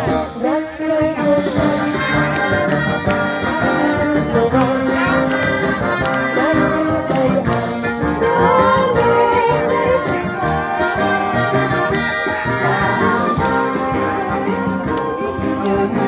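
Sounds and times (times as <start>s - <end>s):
wind band playing: 0.0s - 16.0s.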